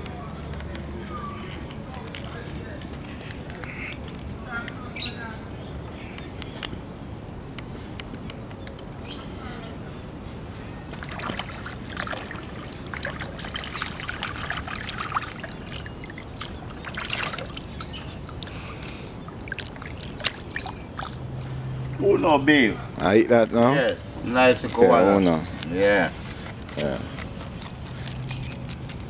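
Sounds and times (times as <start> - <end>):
water splashing in basin: 10.9 - 21.4.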